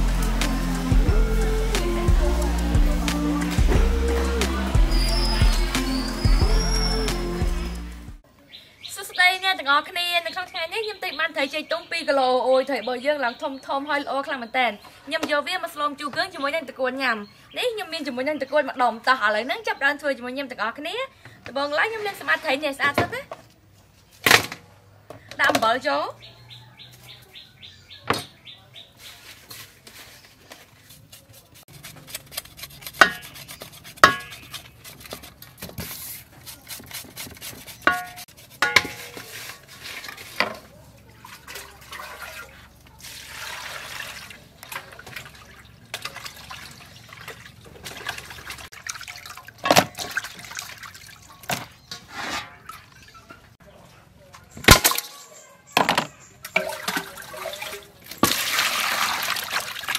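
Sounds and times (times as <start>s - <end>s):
wet rubbing and splashing: 29.0s - 53.3s, 56.5s - 59.9s
metal bowl clanking: 34.0s - 35.6s, 37.8s - 40.7s, 51.3s - 53.5s, 54.6s - 59.4s.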